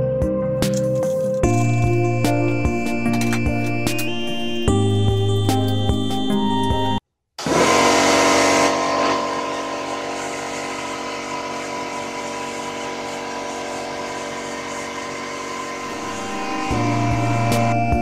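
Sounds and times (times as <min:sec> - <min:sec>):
air compressor running: 0:07.4 - 0:18.0.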